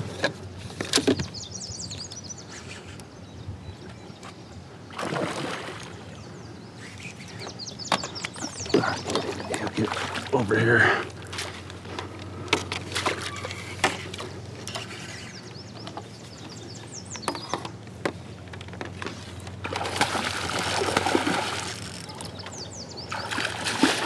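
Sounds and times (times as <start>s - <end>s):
birds chirping: 0.0s - 24.0s
fish splashing at water surface: 19.6s - 22.0s, 23.1s - 24.0s.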